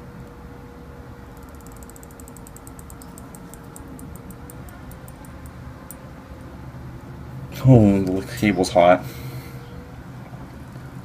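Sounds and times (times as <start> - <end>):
faint hum: 0.0 - 11.0
flux sizzling with crackling ticks: 1.4 - 6.0.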